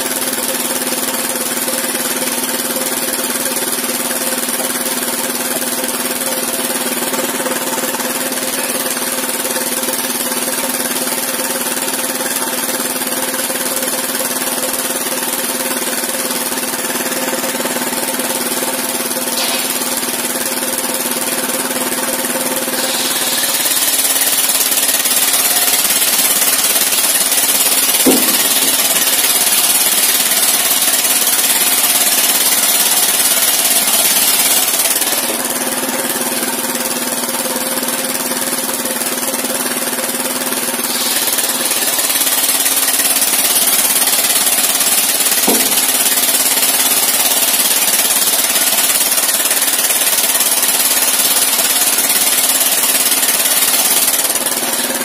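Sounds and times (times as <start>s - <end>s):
circular saw blade ripping timber: 19.2s - 20.9s, 22.6s - 35.6s, 40.7s - 55.0s
sharp knocks: 27.8s - 29.8s, 45.3s - 46.4s.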